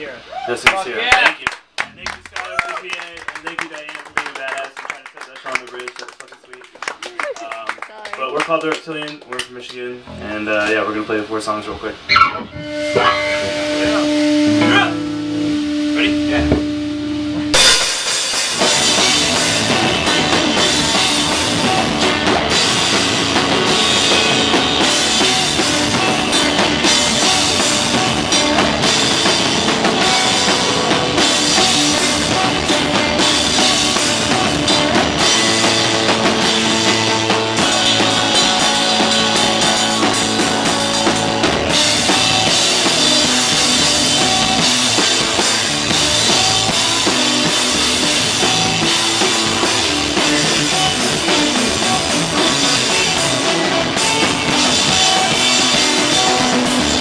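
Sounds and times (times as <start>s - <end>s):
bass guitar: 10.0s - 57.0s
electric guitar: 10.0s - 57.0s
drum kit with crashing cymbals: 12.5s - 57.0s
shouted vocals: 14.6s - 15.0s.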